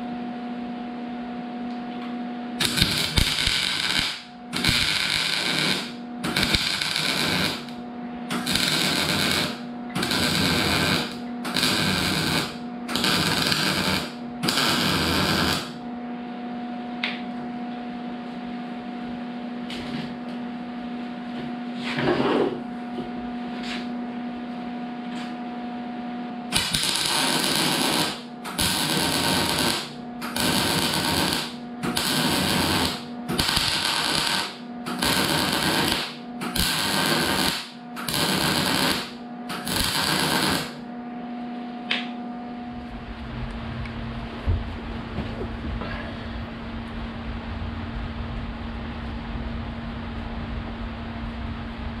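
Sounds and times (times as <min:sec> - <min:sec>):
steady hum: 0:00.0 - 0:52.0
welder arc crackling buzz: 0:02.5 - 0:15.9, 0:26.5 - 0:40.9.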